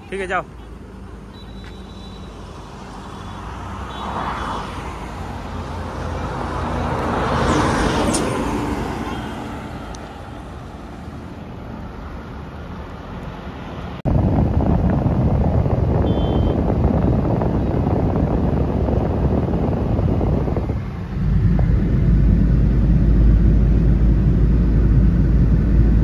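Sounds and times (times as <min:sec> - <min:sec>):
road traffic: 0:00.0 - 0:26.0
diesel engine driving past: 0:20.2 - 0:26.0.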